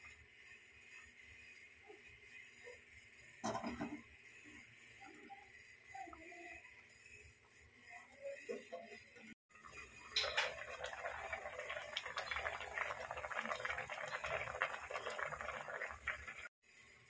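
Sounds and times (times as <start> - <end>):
curry boiling and bubbling: 9.5 - 16.6.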